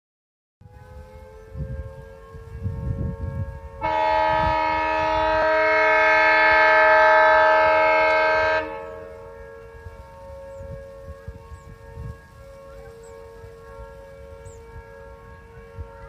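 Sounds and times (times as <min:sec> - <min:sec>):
siren steady tone: 0:00.6 - 0:16.0
train horn blast: 0:00.6 - 0:16.0.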